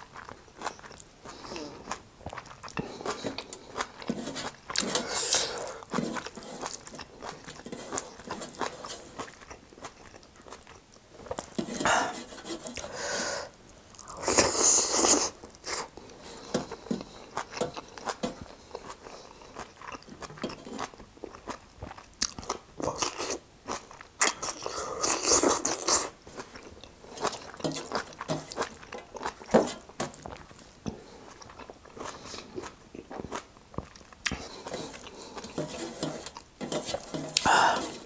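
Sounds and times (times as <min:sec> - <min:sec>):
chewing with wet mouth clicks: 0:00.1 - 0:04.8, 0:05.8 - 0:11.5, 0:16.7 - 0:29.6, 0:30.2 - 0:35.5.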